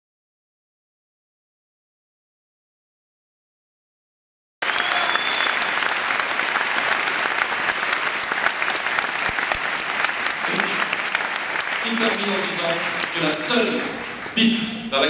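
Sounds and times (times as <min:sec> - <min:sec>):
crowd applauding: 0:04.6 - 0:14.8.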